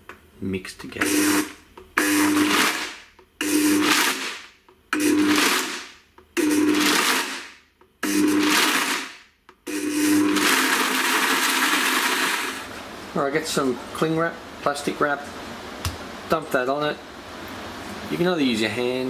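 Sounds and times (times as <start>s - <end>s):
blender pulsing: 1.0s - 12.7s
blender contents clattering: 1.3s - 12.7s.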